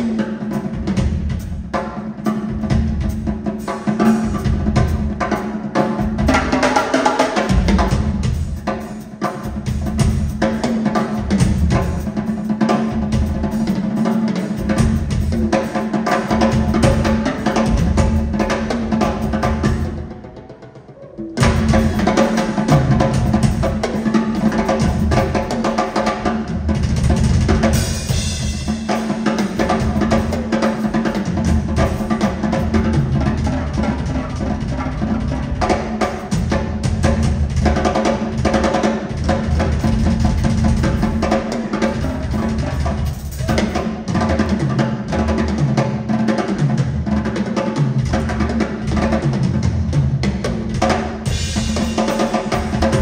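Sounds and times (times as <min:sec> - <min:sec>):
drum kit playing: 0:00.0 - 0:53.0
cymbals: 0:50.5 - 0:53.0.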